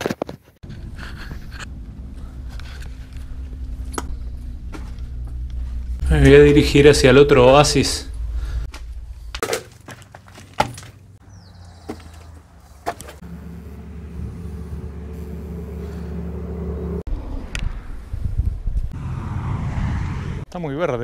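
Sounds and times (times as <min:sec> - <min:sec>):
footsteps on gravel: 0:00.6 - 0:06.6, 0:08.6 - 0:13.2
low hum: 0:00.6 - 0:09.4, 0:11.0 - 0:20.5.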